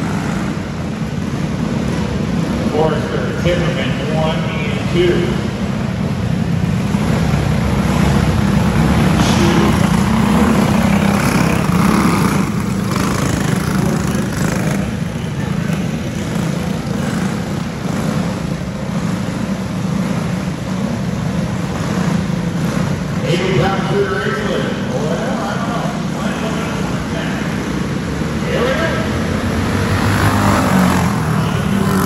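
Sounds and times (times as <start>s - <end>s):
go-kart engines droning: 0.0s - 32.0s.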